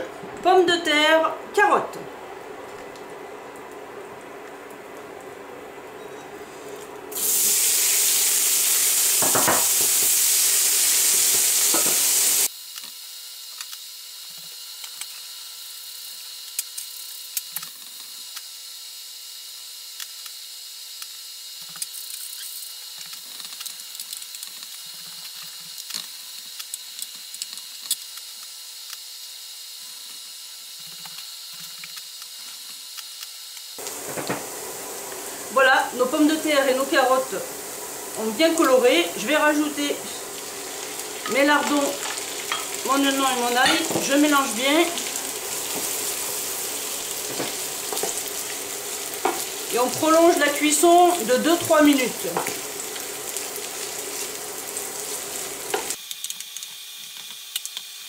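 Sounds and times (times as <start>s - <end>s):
vegetables sizzling in hot oil: 7.1s - 12.5s, 31.2s - 56.0s.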